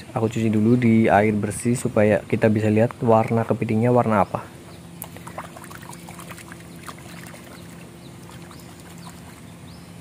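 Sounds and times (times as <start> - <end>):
water splashing: 5.0 - 9.5.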